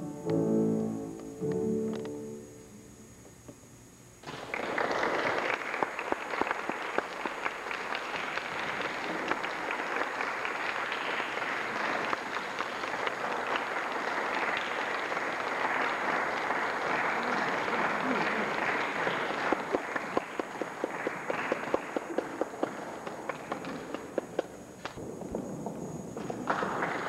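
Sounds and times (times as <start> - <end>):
audience applauding: 4.2 - 25.0, 26.2 - 27.0.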